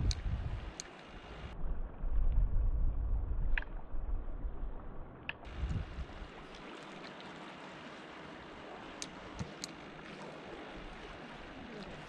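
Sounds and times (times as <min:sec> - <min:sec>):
small clicks: 0:00.0 - 0:01.1, 0:09.0 - 0:09.8
sea water lapping on concrete: 0:05.3 - 0:12.0.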